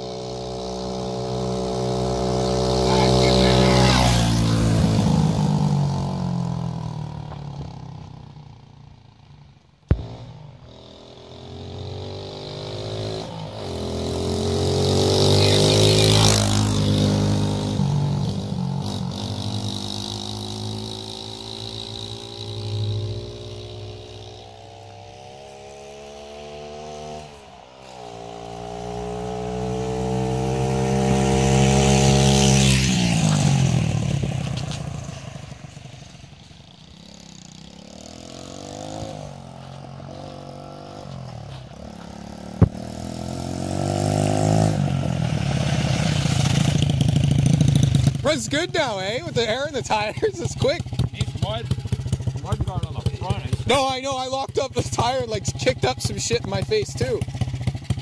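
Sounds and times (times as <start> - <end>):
mini bike engine revving: 0.0 - 8.2, 9.9 - 58.0
sharp crack: 9.9 - 10.7, 42.5 - 43.4.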